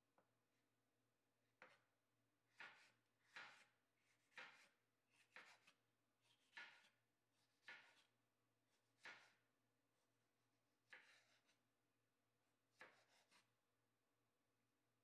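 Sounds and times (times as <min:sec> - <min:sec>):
knife slicing pepper on board: 0:02.5 - 0:08.1, 0:09.0 - 0:09.4, 0:10.9 - 0:11.6, 0:12.7 - 0:13.5.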